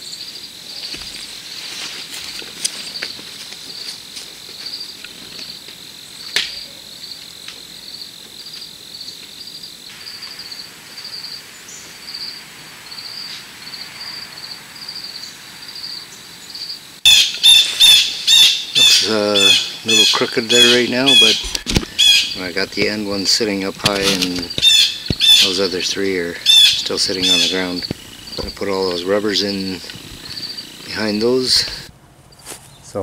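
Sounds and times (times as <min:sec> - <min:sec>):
insects chirping: 0:00.0 - 0:33.0
squawking calls: 0:17.0 - 0:31.9.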